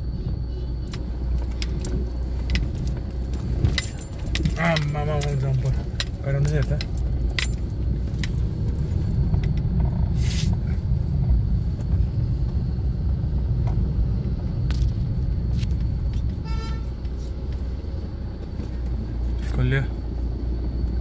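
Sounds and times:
car engine rumble from inside: 0.0 - 21.0
short hiss: 10.2 - 10.6
vehicle horn toot: 16.4 - 17.0.

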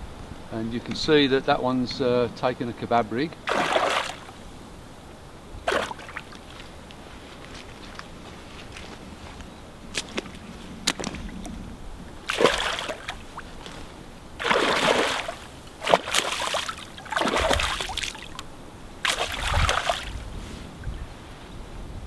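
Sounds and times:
fish splashing in water: 3.5 - 4.4, 5.7 - 6.6, 12.2 - 13.6, 14.4 - 18.4, 19.0 - 20.2.

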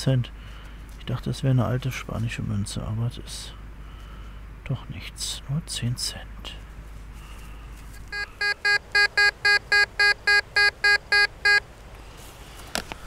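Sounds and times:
metal detector beeping: 8.1 - 11.6.

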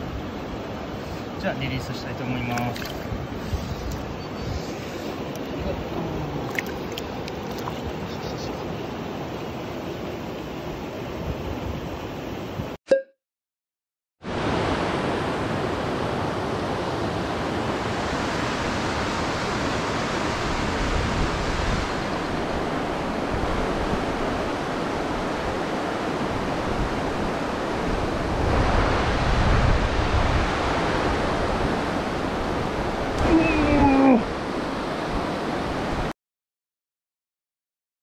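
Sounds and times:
stream rushing over rocks: 0.0 - 4.1, 4.8 - 11.9.

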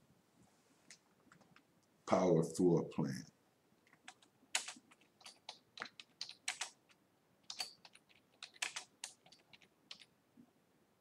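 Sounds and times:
typing on computer keyboard: 3.9 - 10.1.

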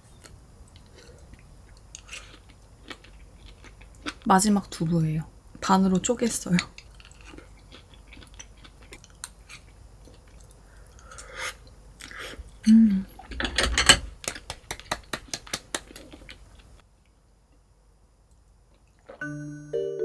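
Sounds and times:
chewing food: 0.1 - 4.3, 6.5 - 12.6, 15.8 - 16.8
person humming: 12.6 - 13.2.

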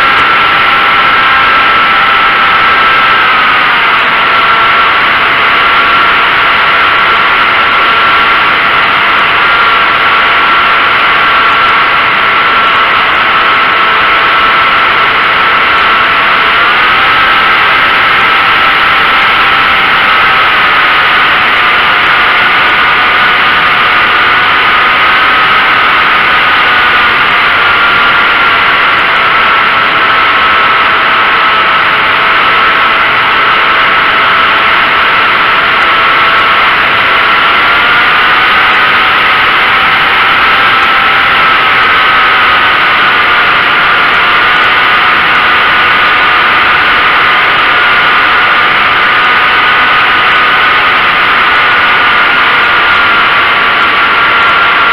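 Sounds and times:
model airplane motor whine: 0.0 - 54.9.

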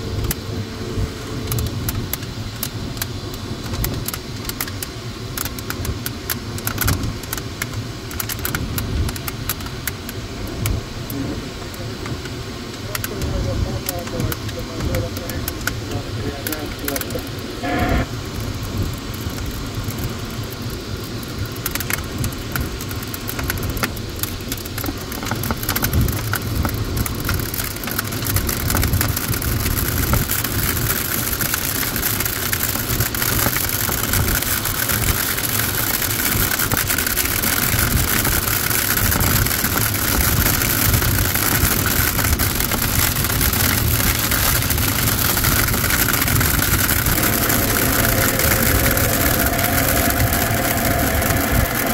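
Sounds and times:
airflow rushing over canopy: 43.6 - 51.9.

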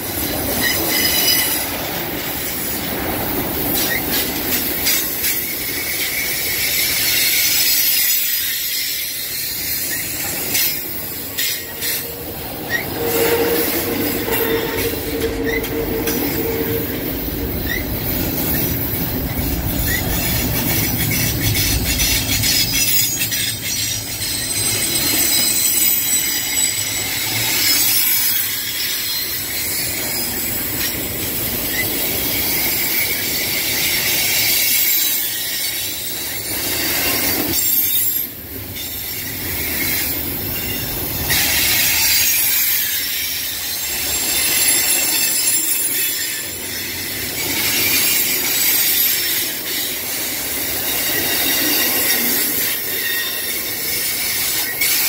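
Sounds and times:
train wheels rumbling on rails: 0.0 - 55.0
wheels clicking over rail joints: 0.0 - 55.0
high-pitched wheel squeal: 0.5 - 1.8, 3.8 - 31.0, 31.6 - 55.0
lower squealing tone: 8.9 - 27.6.

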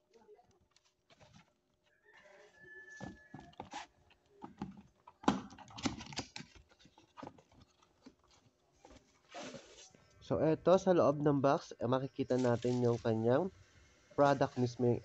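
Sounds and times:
rooster crowing: 2.0 - 3.6.

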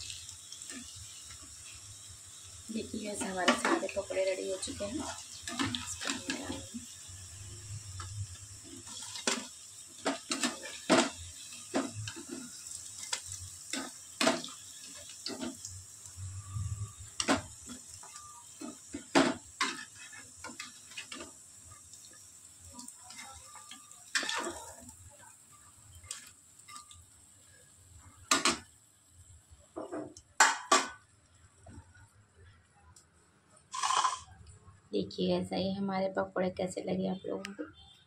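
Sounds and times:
faint steady hiss: 0.0 - 38.0
utensils clinking against plates: 23.1 - 24.8, 33.8 - 34.3.

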